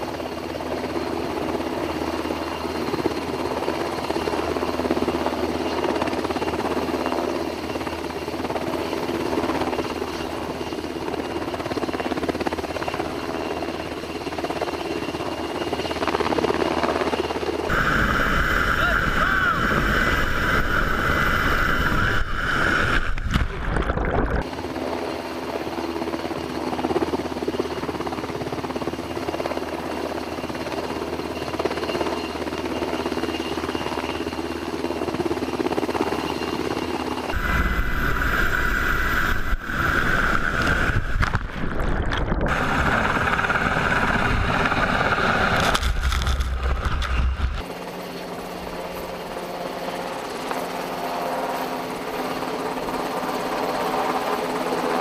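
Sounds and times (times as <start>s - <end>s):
helicopter rotor and engine noise: 0.0s - 55.0s
high steady whine: 17.7s - 24.4s, 37.3s - 47.7s.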